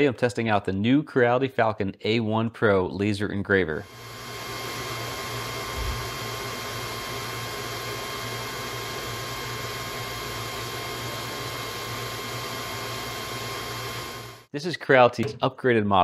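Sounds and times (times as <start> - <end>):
fan whir: 3.9 - 14.5
low hum: 4.0 - 14.5.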